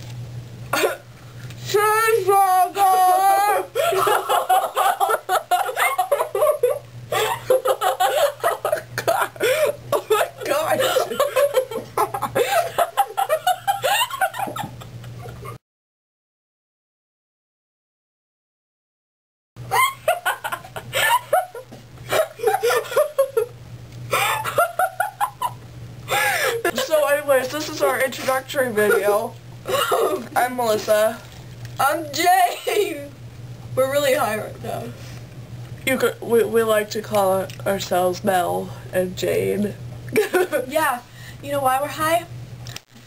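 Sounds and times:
low steady hum: 0:00.0 - 0:15.6, 0:19.6 - 0:43.0
girls laughing: 0:03.0 - 0:15.6, 0:19.7 - 0:27.0, 0:28.8 - 0:30.3, 0:40.1 - 0:40.6.

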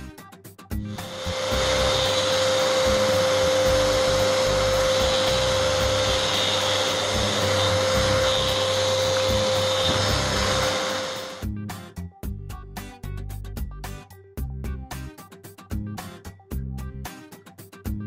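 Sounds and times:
orbital sander running: 0:00.9 - 0:11.4.

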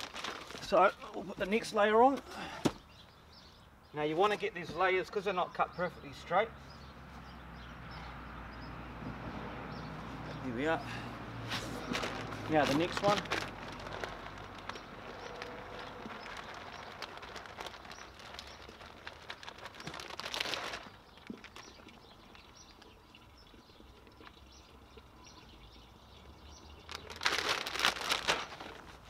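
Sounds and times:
grain pouring from plastic bag: 0:00.0 - 0:01.0, 0:11.6 - 0:21.9, 0:26.8 - 0:29.0
rustling: 0:00.0 - 0:01.7, 0:11.4 - 0:22.0, 0:26.8 - 0:29.0.

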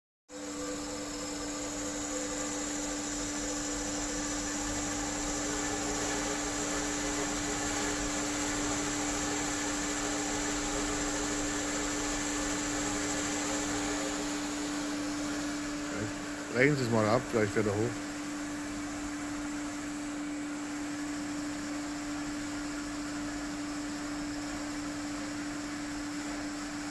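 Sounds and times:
band saw running: 0:00.5 - 0:18.2.

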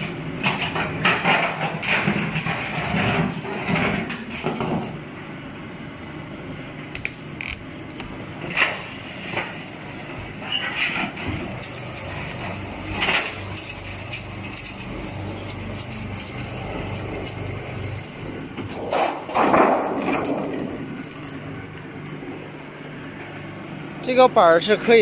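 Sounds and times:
roller machine motor humming: 0:00.0 - 0:25.0
steel sheet clattering on concrete: 0:00.4 - 0:04.9, 0:11.6 - 0:21.2.

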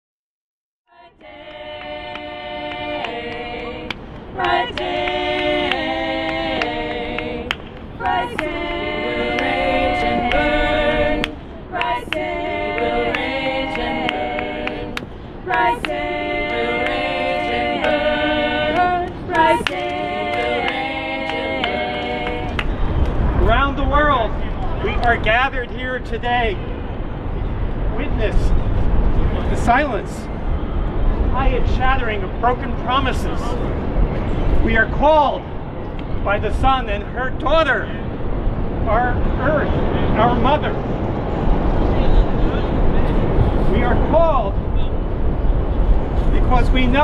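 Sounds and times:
women singing a cappella: 0:00.9 - 0:22.8.

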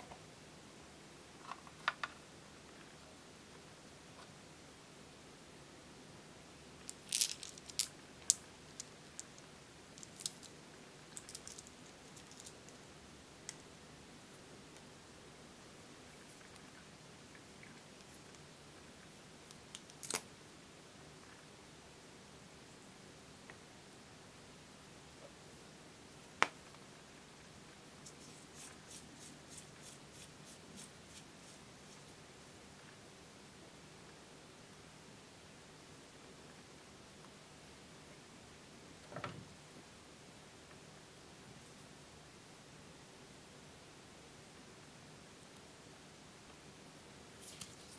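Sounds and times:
plastic charms clicking: 0:06.9 - 0:09.3, 0:10.0 - 0:10.5.

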